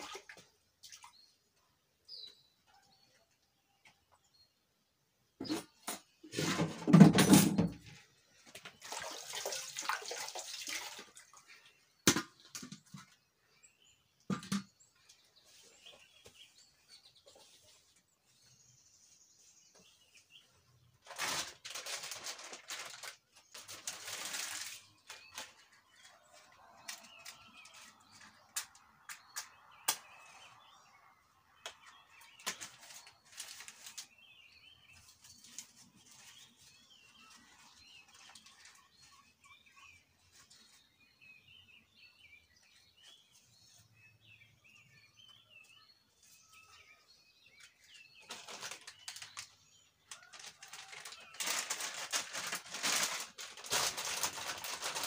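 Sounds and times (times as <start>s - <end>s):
faint birds chirping: 0.0s - 6.9s, 7.7s - 55.0s
pots and firewood knocking: 14.3s - 14.8s
rustling: 21.0s - 27.9s, 50.1s - 55.0s.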